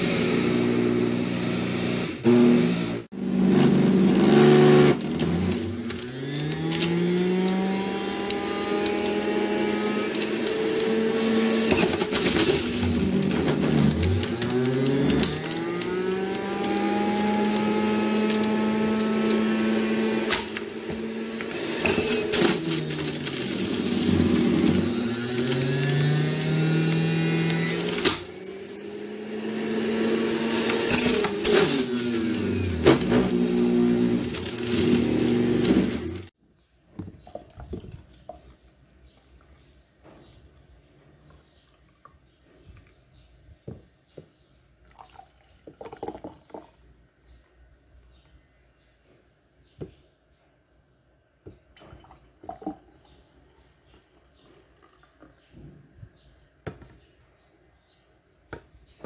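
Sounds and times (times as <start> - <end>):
juicer motor grinding vegetables: 0.0 - 36.3.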